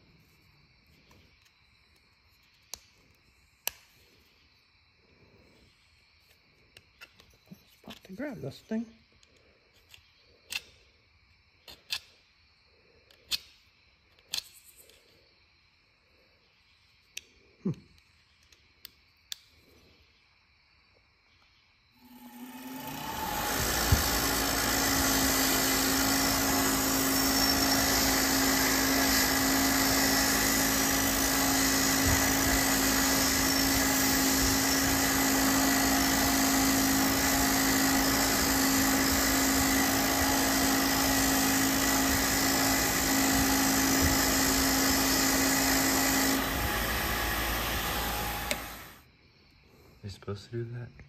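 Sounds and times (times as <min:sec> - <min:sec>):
bench grinder wire wheel scrubbing: 0:22.1 - 0:49.0.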